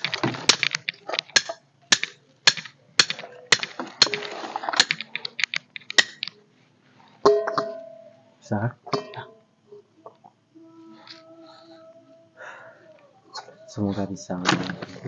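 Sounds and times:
machete chopping wood: 0.0 - 5.0
metal frying pan clanking: 7.3 - 7.9, 8.9 - 9.3.

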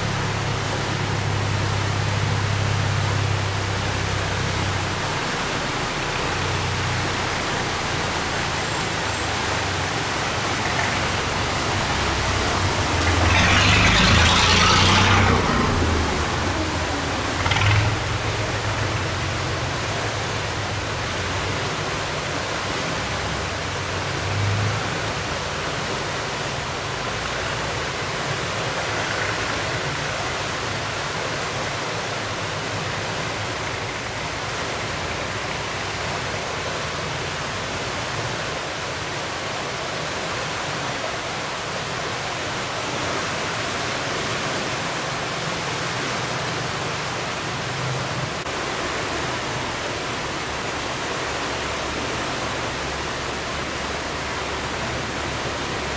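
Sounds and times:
boat engine low hum: 0.0 - 55.9
water rushing through sluice gate: 0.0 - 55.9.

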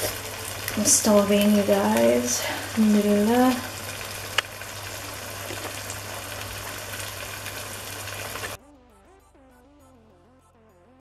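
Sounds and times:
curry simmering and sizzling: 0.0 - 8.6.

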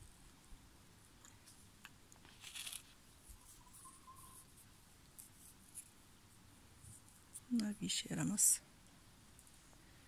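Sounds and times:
short rustle: 1.4 - 6.0.

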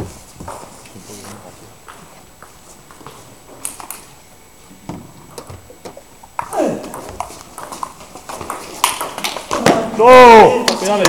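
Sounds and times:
table tennis ball clicking: 5.3 - 9.6.

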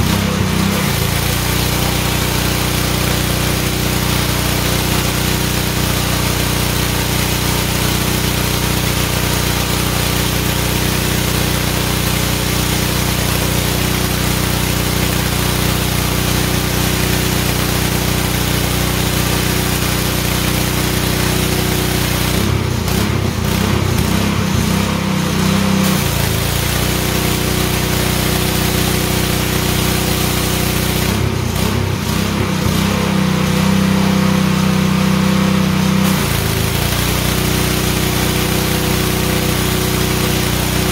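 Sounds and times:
small engine humming: 0.0 - 40.9
high-pressure spray hissing: 35.2 - 40.9.

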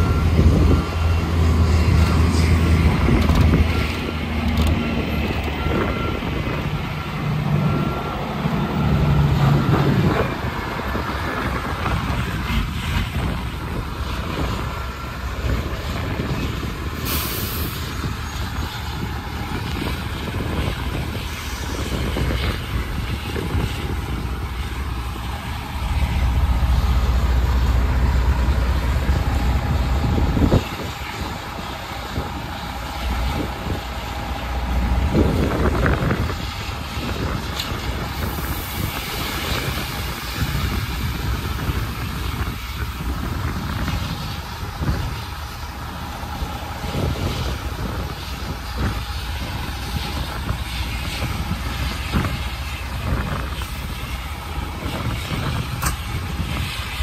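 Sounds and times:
deep engine rumble: 0.0 - 57.0
diesel truck engines running: 0.0 - 57.0
short high hiss: 17.0 - 17.9.

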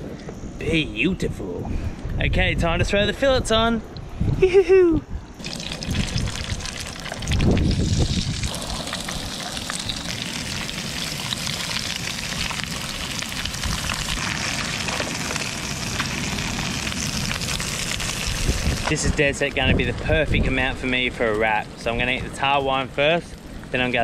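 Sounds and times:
low rumble: 3.8 - 22.3
fish sizzling in hot oil: 5.4 - 19.0.

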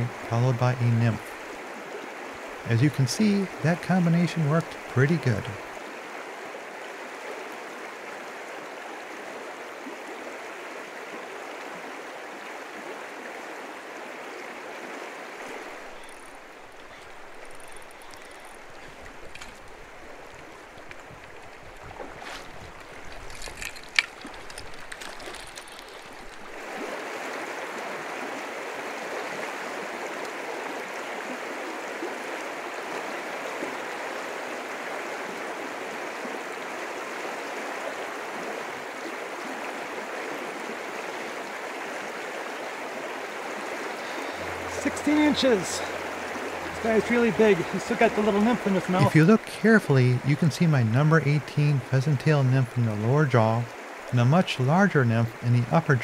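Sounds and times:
creek water rushing: 0.0 - 56.0
light clicks: 16.0 - 26.5.

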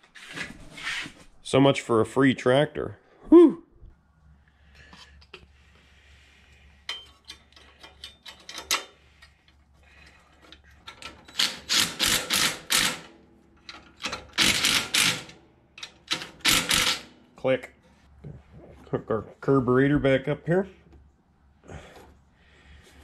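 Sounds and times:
clicks of parts being handled: 6.8 - 9.6
impact driver hammering bolts: 11.0 - 17.2.

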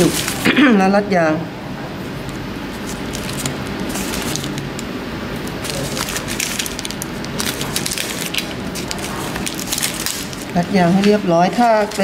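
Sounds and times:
plastic bag rustling: 0.0 - 0.5, 2.7 - 4.8, 5.4 - 12.0
newspaper crinkling: 2.6 - 12.0.

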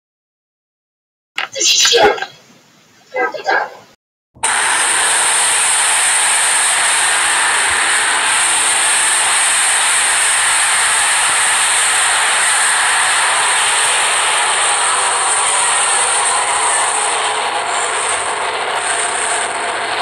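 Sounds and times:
loud steady static hiss: 1.4 - 3.1.

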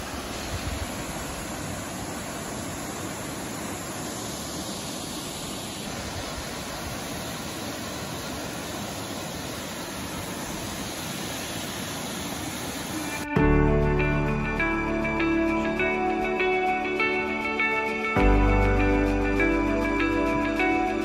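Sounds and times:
waterfall rushing: 0.0 - 13.3.

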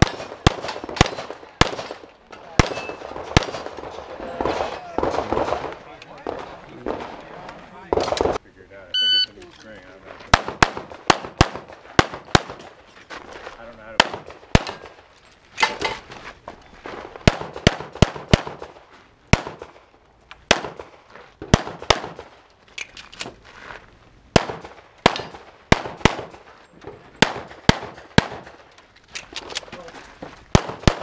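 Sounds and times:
pistol shots: 0.0 - 7.2, 10.3 - 12.7, 14.0 - 15.0, 17.2 - 19.8, 20.5 - 22.4, 24.3 - 26.5, 27.2 - 28.7, 30.5 - 31.0.

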